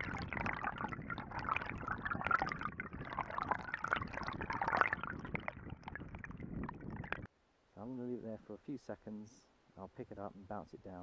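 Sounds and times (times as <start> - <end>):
underwater river current rushing: 0.0 - 7.3.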